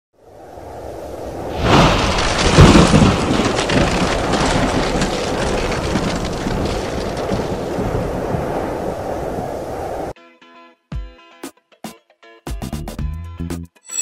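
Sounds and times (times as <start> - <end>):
loud thunderclap: 1.2 - 10.1
rain hiss with fine crackling: 1.6 - 10.1.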